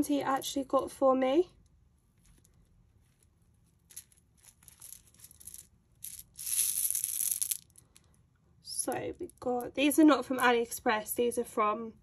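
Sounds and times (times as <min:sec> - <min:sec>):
plastic packet rustling: 0:03.8 - 0:07.8.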